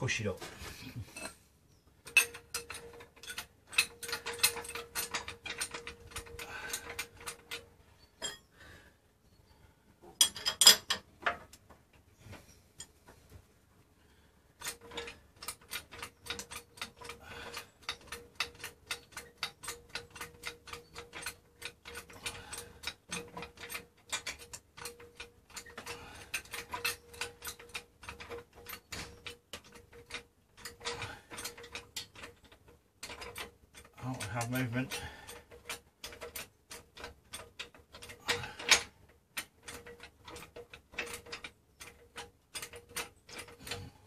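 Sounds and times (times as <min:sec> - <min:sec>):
trolley jack pumping clicks: 0:14.6 - 0:44.0.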